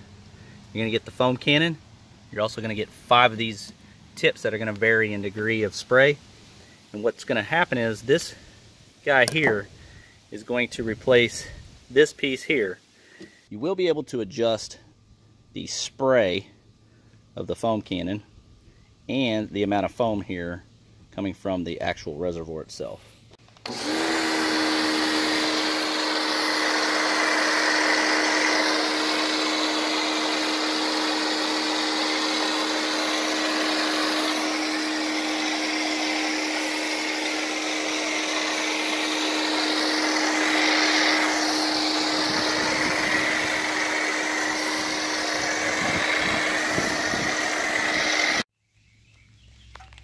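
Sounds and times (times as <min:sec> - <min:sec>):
pressure washer motor hum: 0:23.6 - 0:48.4.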